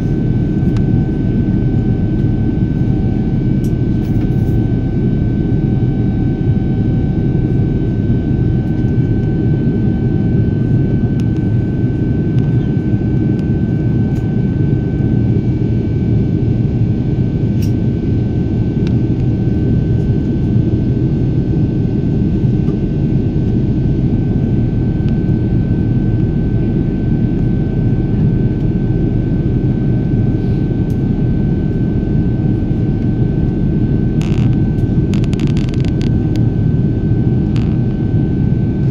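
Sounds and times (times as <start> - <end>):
jet engine rumble in cabin: 0.0 - 38.9
thin steady whine: 0.0 - 38.9.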